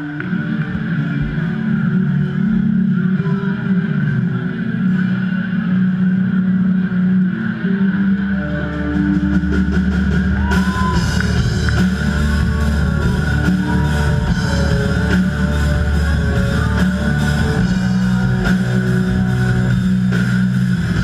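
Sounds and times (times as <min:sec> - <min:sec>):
electric guitar tones: 0:00.0 - 0:21.0
heavy bass: 0:00.0 - 0:21.0
drums and cymbals: 0:08.7 - 0:21.0.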